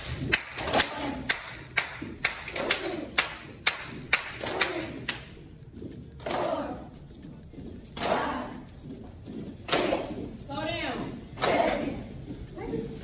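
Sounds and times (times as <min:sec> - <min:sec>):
hand claps keeping time: 0:00.0 - 0:05.3.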